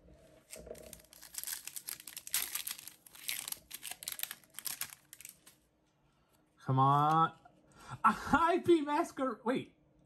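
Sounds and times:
foil pack crinkling and tearing: 0.4s - 5.6s.

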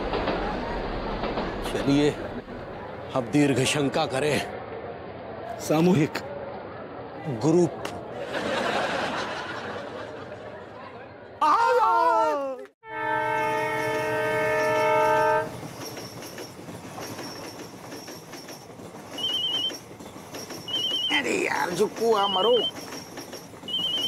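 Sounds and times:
train running on rails: 0.0s - 10.0s, 12.9s - 24.0s
locomotive horn blast: 12.8s - 15.5s.

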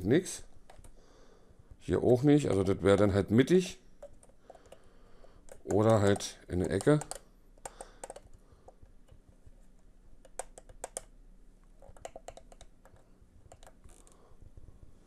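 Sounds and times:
plastic part clicking in hand: 5.5s - 9.2s, 10.2s - 11.1s, 11.8s - 14.1s.

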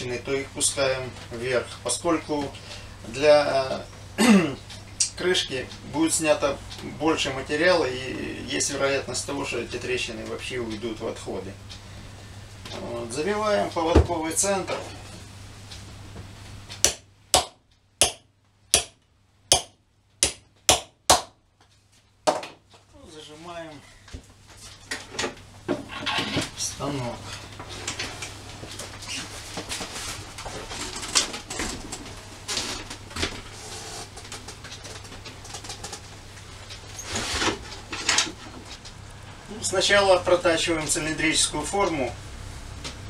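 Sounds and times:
low mains hum: 0.0s - 43.0s
hammer knocking on wood: 16.8s - 18.2s, 18.8s - 21.4s.

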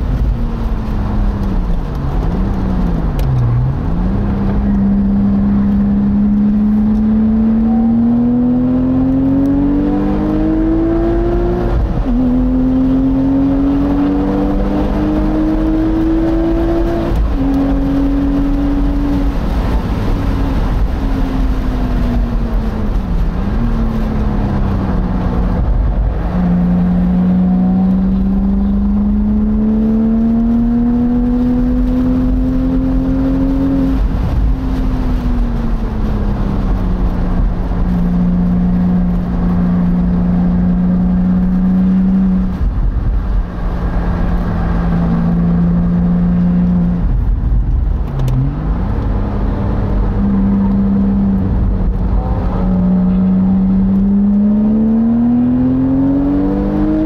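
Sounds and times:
car engine at speed: 0.0s - 57.0s
wind rushing: 41.3s - 57.0s.

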